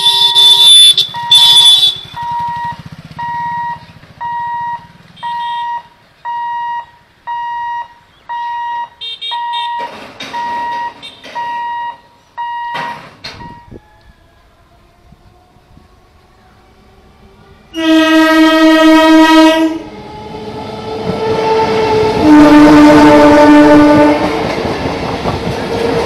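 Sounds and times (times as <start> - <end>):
loud short horn blasts: 0.0 - 2.2, 22.2 - 24.2
level-crossing alarm beeping: 0.0 - 13.8.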